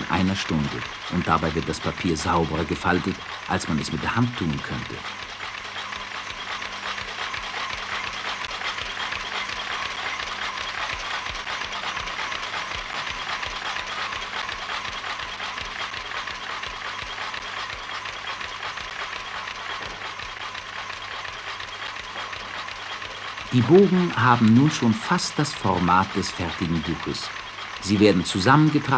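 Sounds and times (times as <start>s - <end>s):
folding machine clattering: 0.0s - 17.3s, 18.0s - 28.9s
steady low hum: 0.0s - 28.9s.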